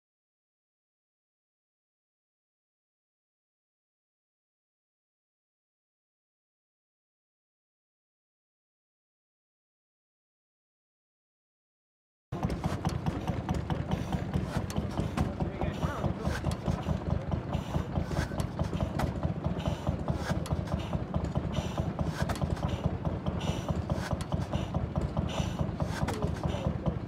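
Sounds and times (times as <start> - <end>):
stationary engine clattering: 12.4 - 27.0.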